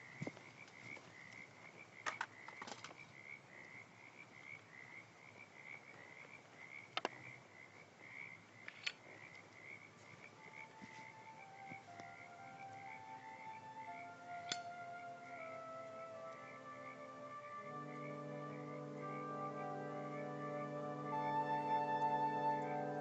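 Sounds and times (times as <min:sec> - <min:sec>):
faint held music tones: 0:00.0 - 0:23.0
high repeating insect chirp: 0:04.7 - 0:20.8
sharp clicks: 0:14.4 - 0:14.7.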